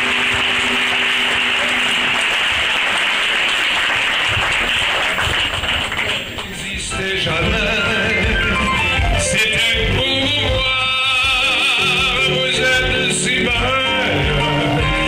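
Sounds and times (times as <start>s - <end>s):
music chord: 0.0s - 3.0s
audience applauding: 0.0s - 7.0s.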